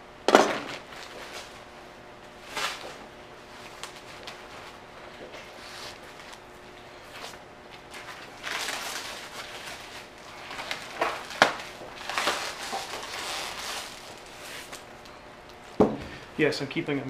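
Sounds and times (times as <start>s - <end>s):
plastic wrap rustling: 0.5s - 1.7s, 2.3s - 15.8s.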